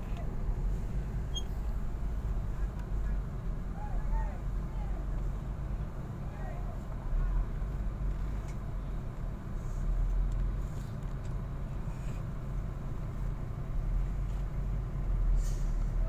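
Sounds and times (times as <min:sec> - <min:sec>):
truck engines idling: 0:00.0 - 0:16.0
faint short hisses: 0:15.3 - 0:15.9.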